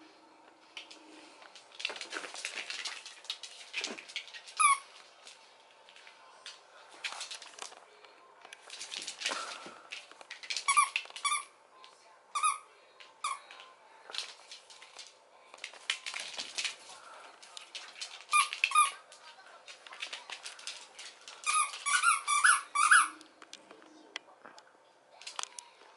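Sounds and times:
squeaky toy squeaks: 0:21.4 - 0:23.2.

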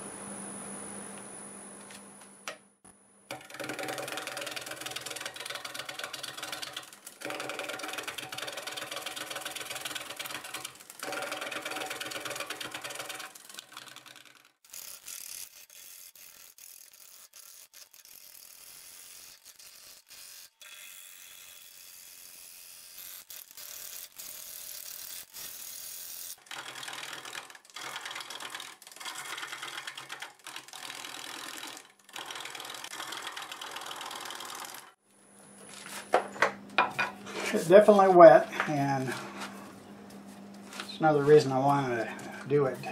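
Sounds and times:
wood lathe cutting wood: 0:03.3 - 0:25.2, 0:25.8 - 0:35.0.

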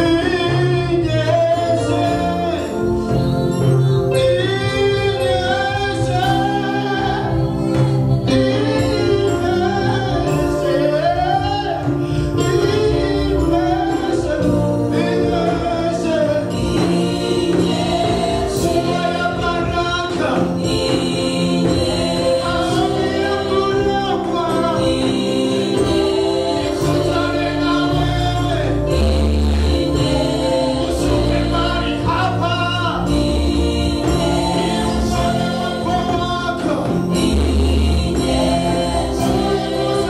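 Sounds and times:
man singing into a microphone: 0:00.0 - 0:02.9, 0:04.1 - 0:07.4, 0:08.2 - 0:20.8
held instrumental accompaniment: 0:00.0 - 0:40.0
backing singers: 0:04.1 - 0:40.0.

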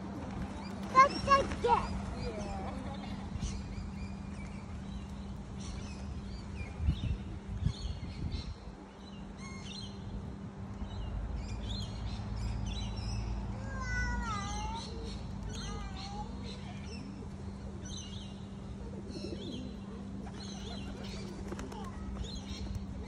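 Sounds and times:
wind rumbling on microphone: 0:00.0 - 0:08.9
small birds chirping: 0:00.4 - 0:23.0.

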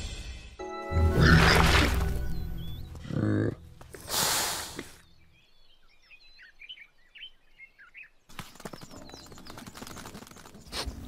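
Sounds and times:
small birds chirping: 0:01.8 - 0:11.0
crackling rustle with clicks: 0:08.3 - 0:11.0.

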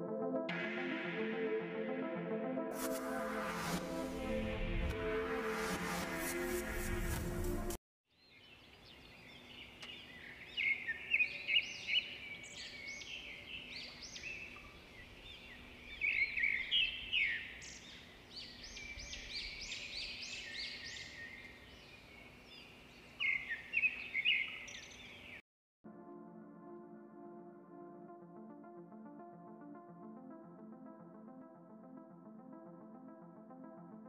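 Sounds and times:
birds chirping and chattering: 0:08.6 - 0:25.4.

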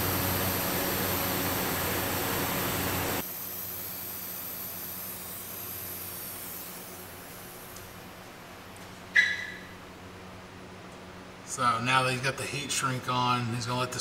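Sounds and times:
heat gun hissing: 0:00.0 - 0:08.1.

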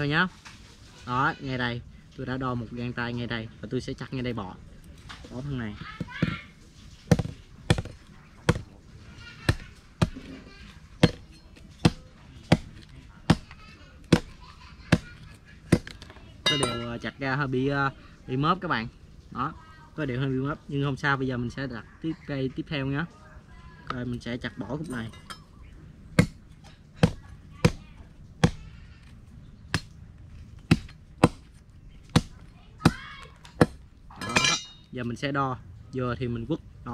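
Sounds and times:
machete chopping bamboo: 0:07.1 - 0:08.8, 0:09.4 - 0:10.4, 0:11.0 - 0:16.9, 0:26.1 - 0:28.8, 0:29.7 - 0:35.0.

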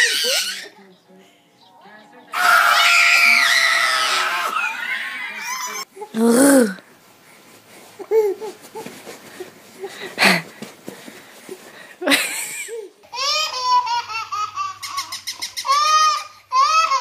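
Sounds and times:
baby laughing: 0:00.0 - 0:00.8, 0:08.0 - 0:09.5, 0:12.1 - 0:17.0
people laughing: 0:12.0 - 0:12.9.

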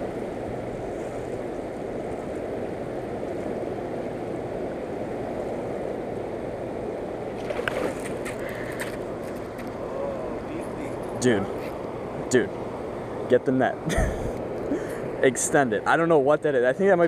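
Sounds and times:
fast river current rushing: 0:06.8 - 0:12.2.

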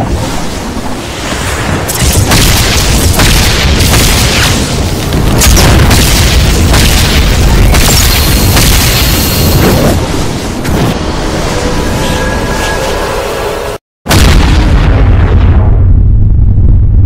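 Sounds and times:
booms and crashes: 0:00.0 - 0:11.1, 0:14.1 - 0:17.0
low rumble: 0:14.1 - 0:17.0.

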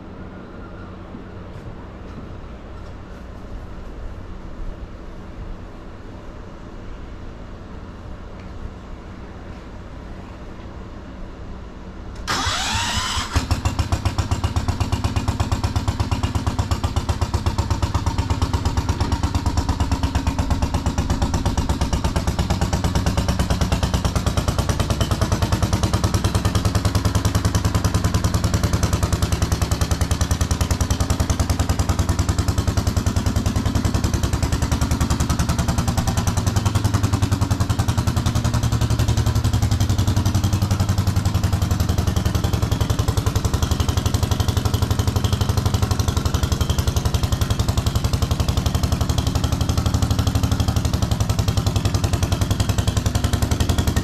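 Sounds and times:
starter cranking engine: 0:12.3 - 0:19.9
small engine running: 0:12.3 - 0:54.0.

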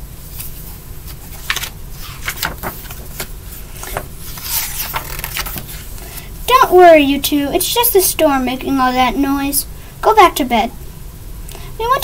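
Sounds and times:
book pages rustling: 0:00.3 - 0:06.3.

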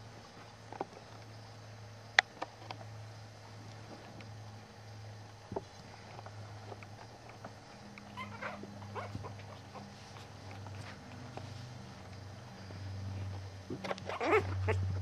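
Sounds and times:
steady low hum: 0:00.0 - 0:15.0
puppy squeaking and whimpering: 0:08.2 - 0:09.8, 0:13.9 - 0:15.0.

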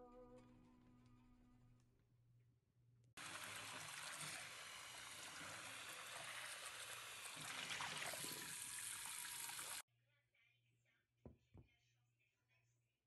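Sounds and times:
water pouring into frying pan: 0:03.2 - 0:09.8.

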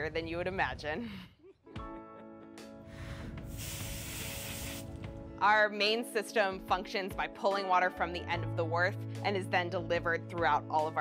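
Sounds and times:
hose spray nozzle hissing: 0:03.5 - 0:05.0.

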